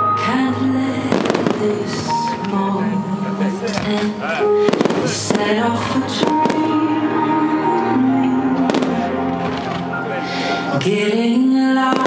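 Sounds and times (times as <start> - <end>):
loud music: 0.0 - 12.0
firework shells bursting: 1.1 - 2.7, 3.7 - 6.8.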